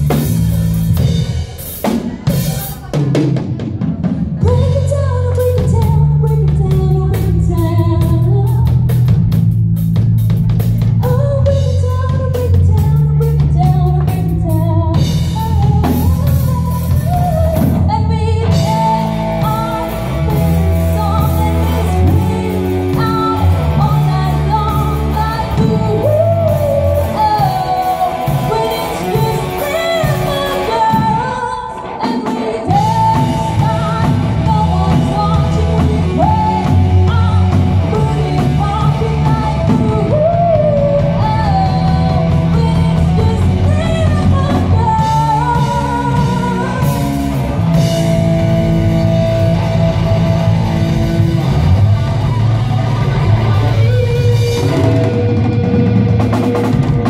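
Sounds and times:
drum kit: 0.0 - 57.0
electric guitar: 0.0 - 57.0
woman singing into a microphone: 4.2 - 9.0, 11.0 - 47.9, 53.4 - 55.5.

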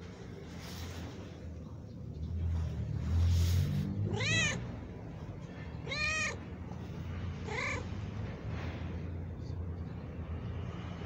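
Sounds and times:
low steady rumble: 0.0 - 11.0
cat meowing: 4.0 - 4.8, 5.8 - 6.4, 7.4 - 7.9.

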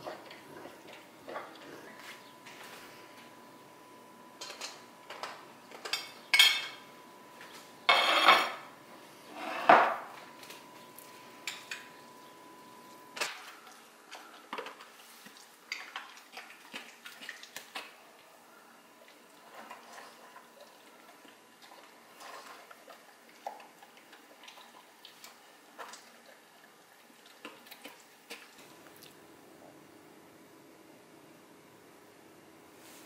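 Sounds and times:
metal spoon scraping dishes: 7.9 - 8.6.

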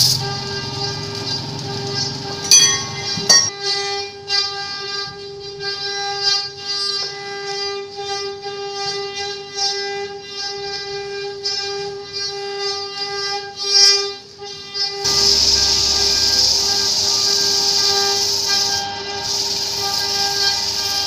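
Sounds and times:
wood lathe whine: 0.0 - 3.5, 14.5 - 21.0
rasping hiss of wood turning: 15.1 - 21.0.

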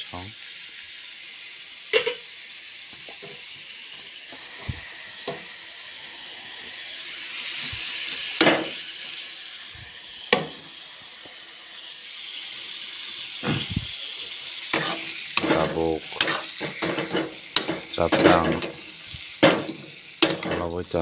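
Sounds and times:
potato slices sizzling in oil: 0.0 - 21.0
utensils clinking against pan: 1.9 - 2.3, 14.7 - 20.8.

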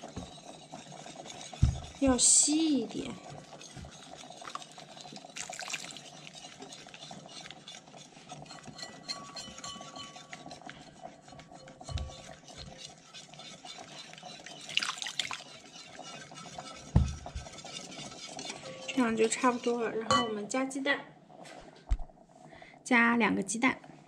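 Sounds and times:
utensil stirring batter in bowl: 0.0 - 20.8
faint hum: 18.5 - 24.0.

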